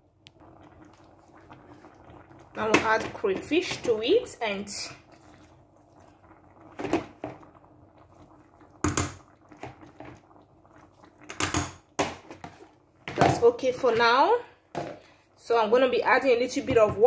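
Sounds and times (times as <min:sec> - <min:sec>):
knocks and clunks of kitchen items: 0:06.8 - 0:07.4, 0:08.8 - 0:10.2, 0:11.3 - 0:15.1.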